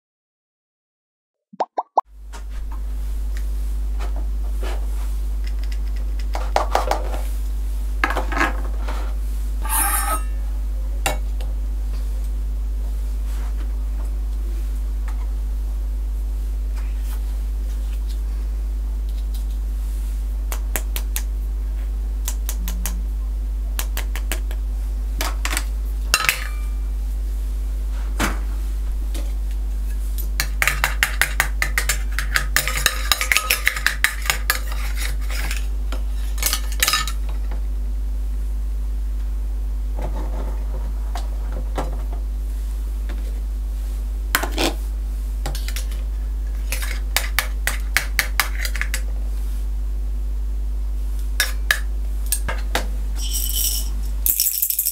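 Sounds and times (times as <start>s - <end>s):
steady low hum: 2.1s - 54.9s
toy pieces clinking on toy pan: 53.2s - 54.9s.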